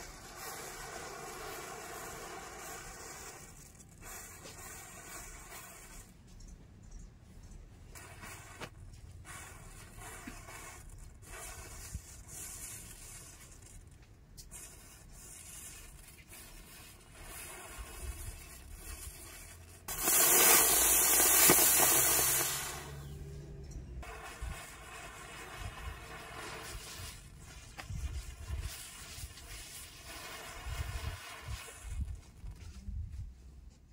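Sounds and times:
firework spraying hiss: 0.0s - 6.2s, 7.9s - 23.3s, 24.0s - 32.6s
matches crackling fizz: 8.0s - 23.1s, 24.0s - 32.7s.

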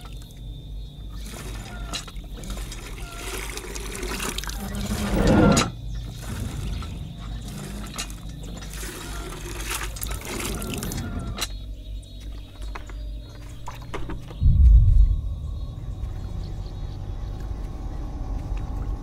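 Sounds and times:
water gushing into plastic bucket: 1.2s - 5.4s, 6.1s - 11.4s.

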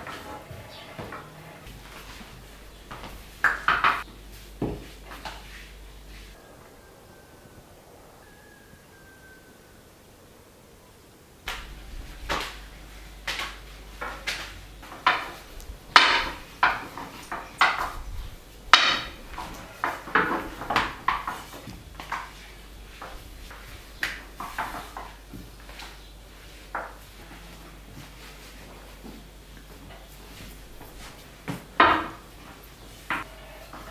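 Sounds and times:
kitchen knocks and clatters: 0.0s - 5.4s, 11.5s - 26.1s, 29.1s - 33.9s
low steady hum: 0.0s - 33.9s.

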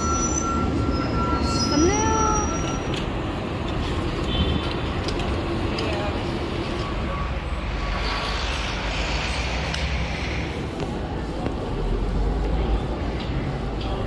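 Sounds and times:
low rumble of passing cars: 0.0s - 14.0s
hiss: 8.0s - 11.8s.

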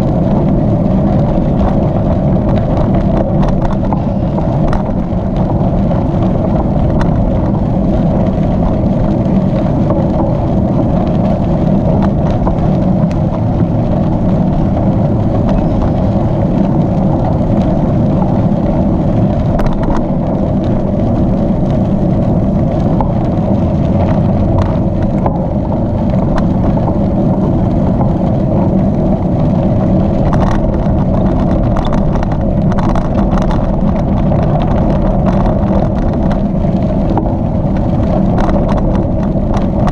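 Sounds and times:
bike tyres rolling on gravel: 0.0s - 39.9s
wind noise on microphone: 0.0s - 39.9s.

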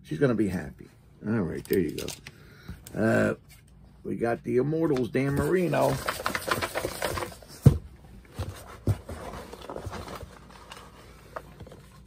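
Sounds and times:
hand rummaging among tickets: 4.8s - 7.6s
paper tickets rattling in a box: 5.3s - 7.5s.

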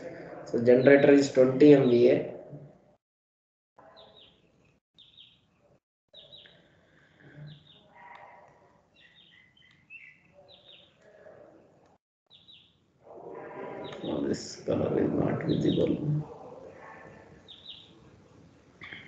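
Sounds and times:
faint birds chirping: 3.8s - 19.0s.

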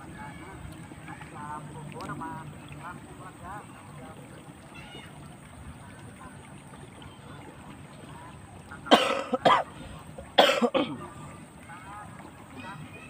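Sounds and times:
person coughing: 8.9s - 9.7s, 10.4s - 11.0s.

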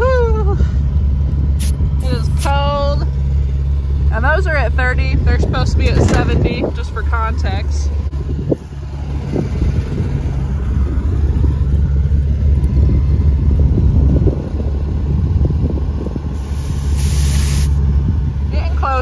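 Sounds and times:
engine humming: 0.0s - 19.0s
air hissing: 1.6s - 2.5s, 16.4s - 17.8s.

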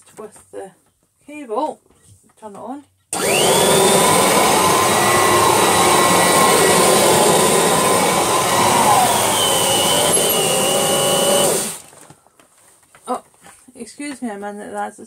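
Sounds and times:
higher whine of rug in nozzle: 3.2s - 11.8s
vacuum cleaner whining: 3.2s - 12.1s.

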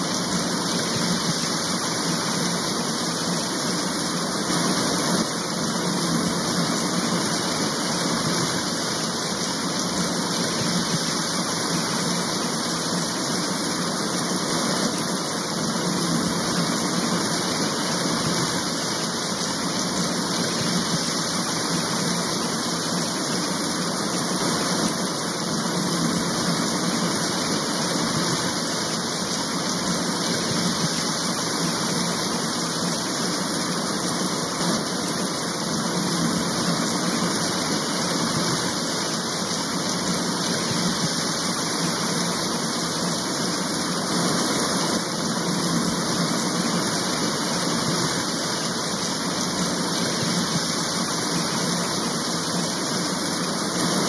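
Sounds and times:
steady rain: 0.0s - 54.0s.

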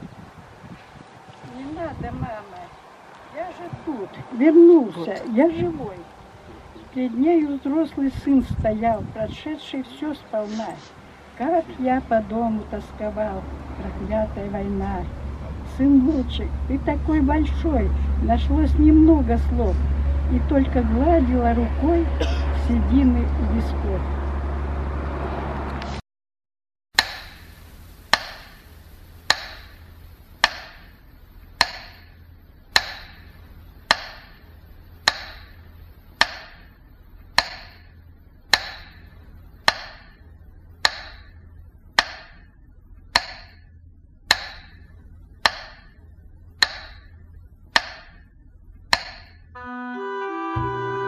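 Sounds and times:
metronome ticking: 27.0s - 29.8s, 30.4s - 31.0s, 31.6s - 36.7s, 37.3s - 37.9s, 38.5s - 40.2s, 40.8s - 43.7s, 44.3s - 48.2s, 48.9s - 49.9s.

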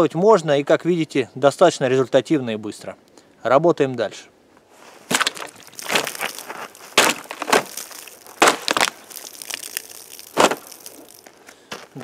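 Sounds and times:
plastic bottle crunching: 5.0s - 12.0s.

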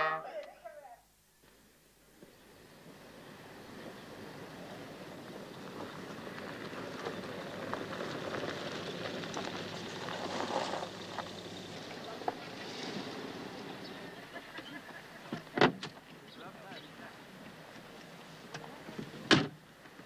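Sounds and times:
gravel clicks: 4.6s - 13.6s
tyres crunching over gravel: 4.7s - 13.7s.

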